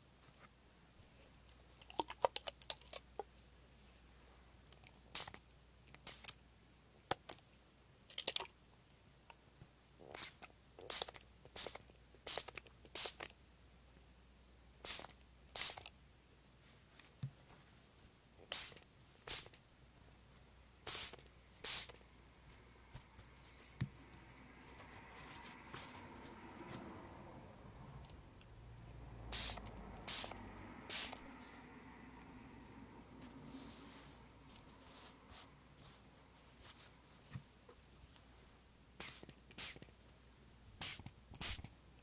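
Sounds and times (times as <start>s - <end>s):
spray bottle hissing: 18.5s - 19.5s, 20.9s - 22.0s, 29.3s - 31.3s, 39.0s - 39.8s, 40.8s - 41.7s.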